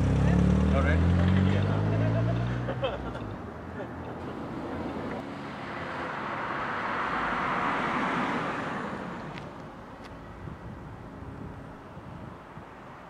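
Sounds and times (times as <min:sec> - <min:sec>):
car passing by: 0:00.0 - 0:03.2, 0:04.1 - 0:09.6.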